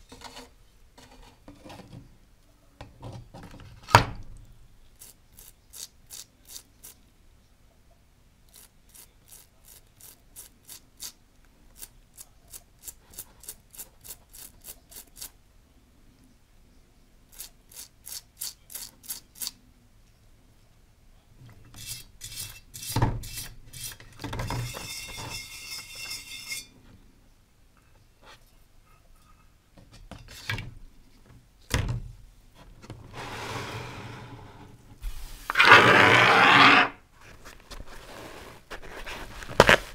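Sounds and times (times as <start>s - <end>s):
scraping and handling: 0.0s - 2.2s, 21.4s - 27.0s, 32.5s - 39.9s.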